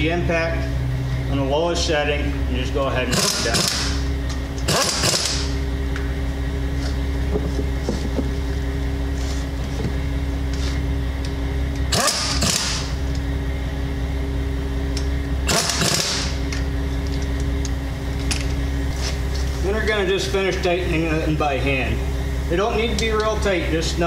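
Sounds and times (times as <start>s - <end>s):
low mechanical hum: 0.0s - 24.0s
air impact wrench bursts: 3.1s - 5.6s, 11.9s - 13.0s, 15.4s - 16.5s.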